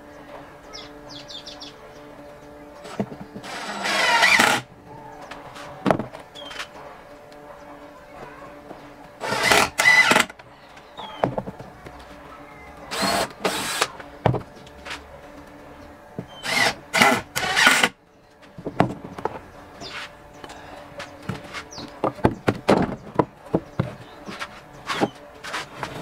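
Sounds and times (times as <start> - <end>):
power driver driving screws into wood: 2.8 - 4.7, 9.2 - 10.4, 12.9 - 14.0, 16.4 - 18.0.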